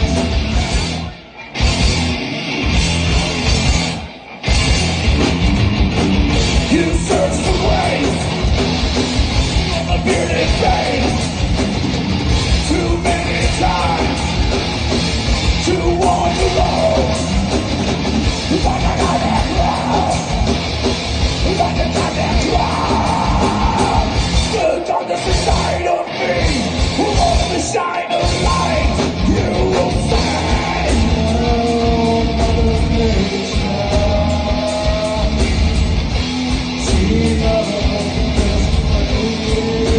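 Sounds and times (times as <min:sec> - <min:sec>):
drums: 0:00.0 - 0:39.9
electric guitars: 0:00.0 - 0:39.9
person singing: 0:06.6 - 0:08.4, 0:09.7 - 0:11.4, 0:12.6 - 0:14.6, 0:15.6 - 0:17.5, 0:18.4 - 0:20.6, 0:21.4 - 0:39.9.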